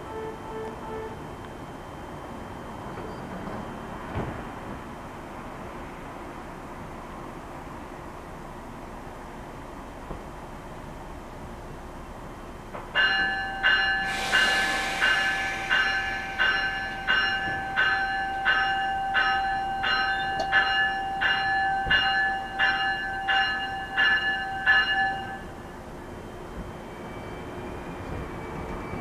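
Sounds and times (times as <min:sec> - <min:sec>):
train bell ringing: 0:13.0 - 0:26.3
brief hiss: 0:14.0 - 0:17.6.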